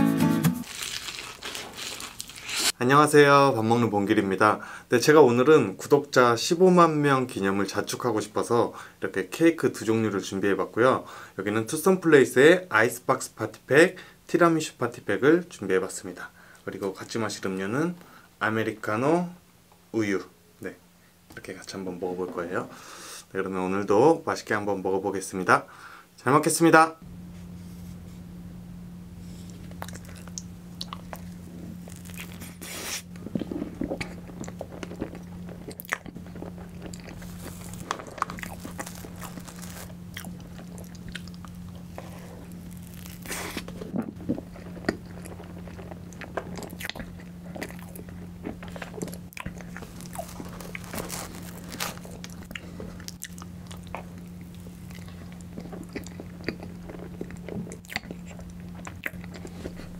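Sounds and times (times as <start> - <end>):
wet chewing and smacking: 29.4 - 59.9.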